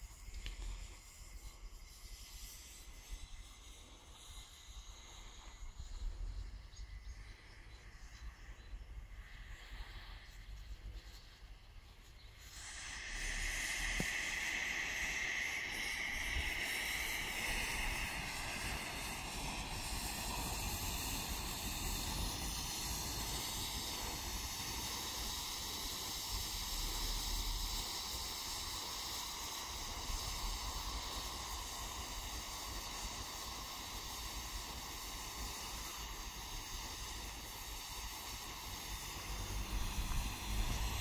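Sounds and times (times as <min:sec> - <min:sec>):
smoke grenade hissing: 0:00.0 - 0:41.0.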